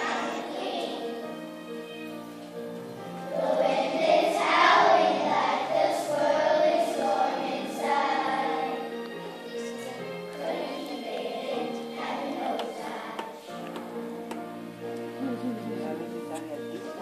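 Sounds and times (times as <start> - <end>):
children singing: 0.0 - 2.1, 3.3 - 14.2
musical accompaniment: 0.0 - 17.0.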